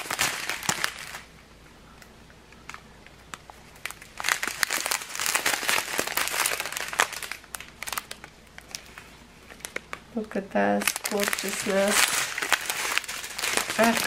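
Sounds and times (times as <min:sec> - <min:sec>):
plastic bags crinkling: 0:00.0 - 0:01.4, 0:02.5 - 0:14.0
small beads shifting in bag: 0:03.8 - 0:08.9, 0:10.8 - 0:14.0.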